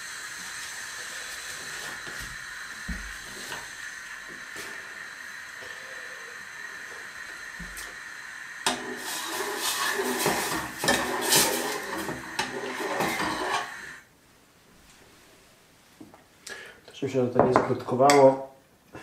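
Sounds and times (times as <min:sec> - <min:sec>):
steady hiss: 0:00.0 - 0:17.2
metal spoon scraping a saucepan: 0:08.7 - 0:13.9.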